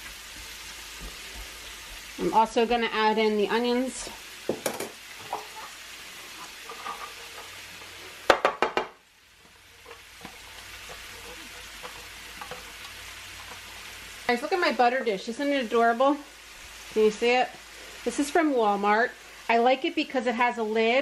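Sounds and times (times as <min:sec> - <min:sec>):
mushrooms sizzling in frying pan: 0:00.0 - 0:21.0.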